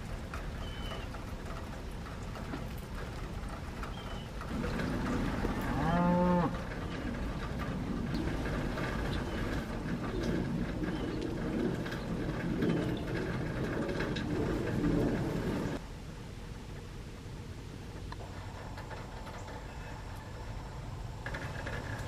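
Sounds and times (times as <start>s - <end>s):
steady low rumble: 0.0s - 22.0s
cow mooing: 5.5s - 6.6s.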